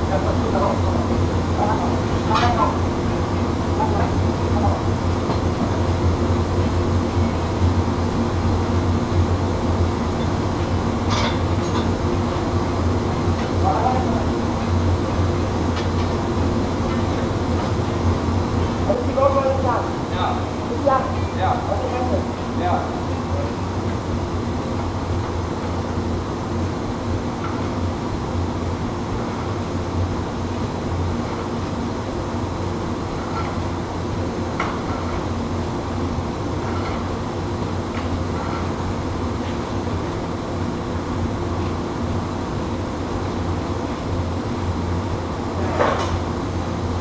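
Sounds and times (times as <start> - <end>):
furnace and machinery drone: 0.0 - 47.0.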